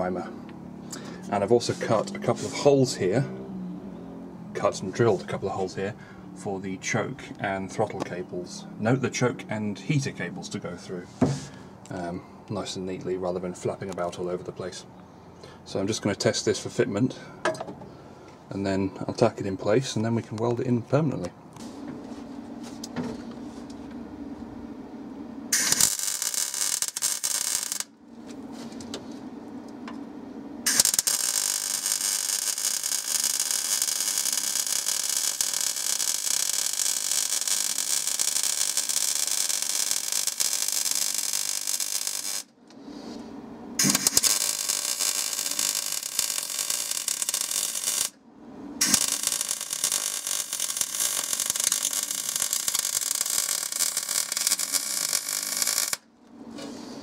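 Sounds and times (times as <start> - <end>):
electric arc welding: 25.5 - 28.0, 30.6 - 42.6, 43.8 - 48.2, 48.8 - 56.1.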